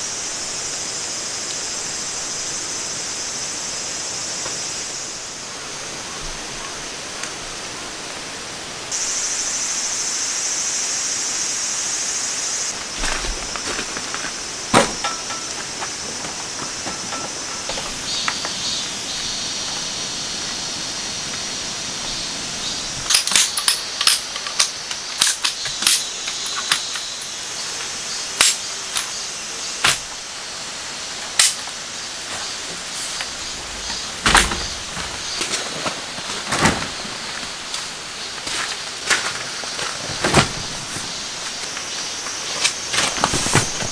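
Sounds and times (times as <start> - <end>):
steady background hiss: 0.0 - 43.9
camping gear clicks and knocks: 12.7 - 18.8, 23.0 - 27.1, 32.3 - 43.9.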